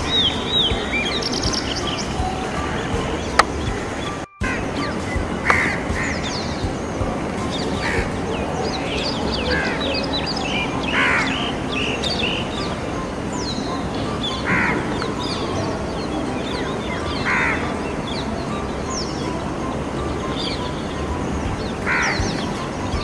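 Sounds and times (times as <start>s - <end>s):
birds chirping and whistling: 0.0s - 23.0s
harsh bird calls: 0.0s - 23.0s.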